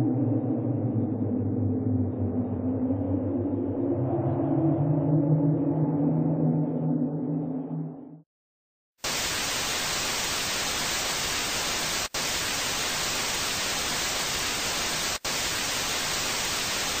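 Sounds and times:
television static hiss: 0:09.1 - 0:17.0.

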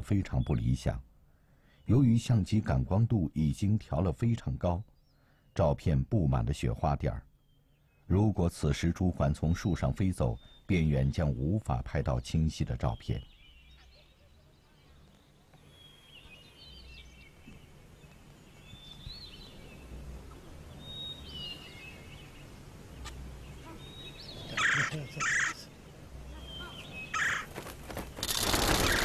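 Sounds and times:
ibises calling harshly: 0:23.0 - 0:25.7, 0:26.3 - 0:29.0.

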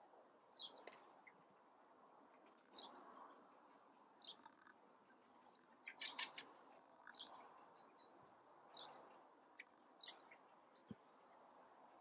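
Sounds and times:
small birds chirping: 0:03.6 - 0:12.0.

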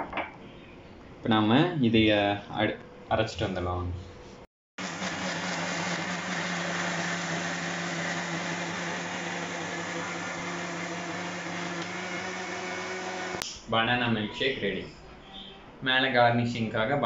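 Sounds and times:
mixer grinder motor blending: 0:04.8 - 0:13.4.

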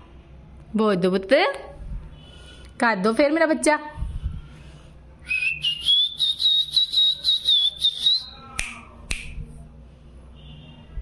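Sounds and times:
cockatiel whistling: 0:05.3 - 0:08.4.

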